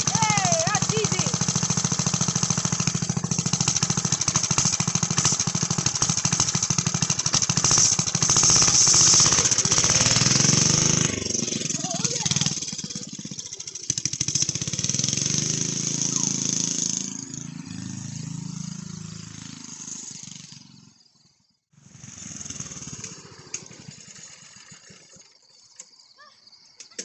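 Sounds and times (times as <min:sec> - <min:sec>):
go-kart engine running: 0:00.0 - 0:26.3.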